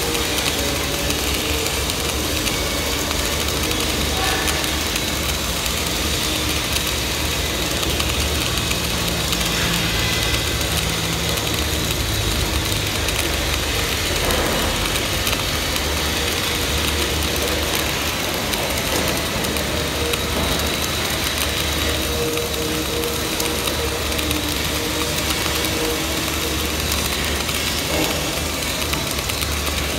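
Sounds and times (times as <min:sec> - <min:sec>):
welding arc crackling and hissing: 0:00.0 - 0:29.9.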